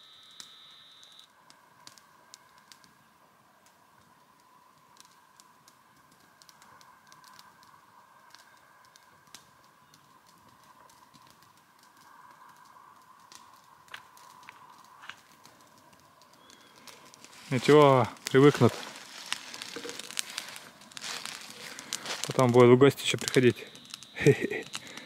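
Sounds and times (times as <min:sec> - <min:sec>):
faint steady high tone: 0:00.0 - 0:01.3
small clicks and crackles: 0:00.0 - 0:25.0.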